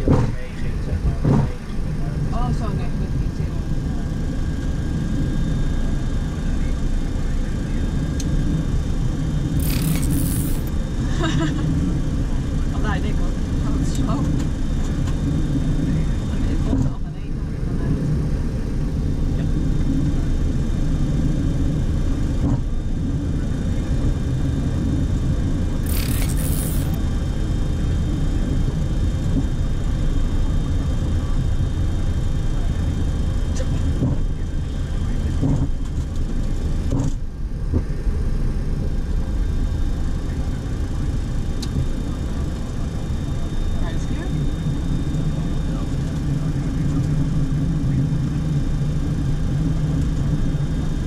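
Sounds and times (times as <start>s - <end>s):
aircraft low rumble: 0.0s - 51.0s
short hiss: 25.9s - 27.0s.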